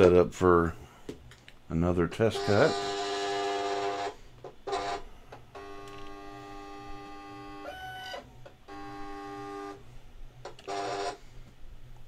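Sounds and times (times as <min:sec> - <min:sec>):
vinyl cutter motors whining: 0:02.2 - 0:09.8.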